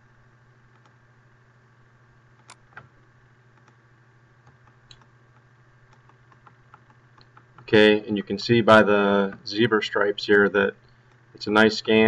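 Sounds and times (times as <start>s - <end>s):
low hum: 0.0s - 12.0s
mouse and keyboard clicks: 2.4s - 2.9s, 4.4s - 5.1s, 5.9s - 7.7s.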